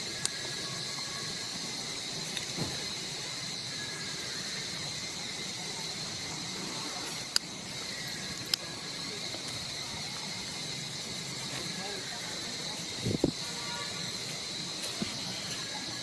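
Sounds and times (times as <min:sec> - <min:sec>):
high-pitched insect chorus: 0:00.0 - 0:16.0
sharp clicks: 0:08.3 - 0:08.7.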